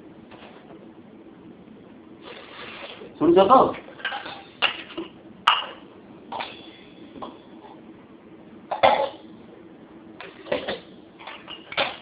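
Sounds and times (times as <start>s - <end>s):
steel kitchen vessels clinking: 10.5s - 12.0s.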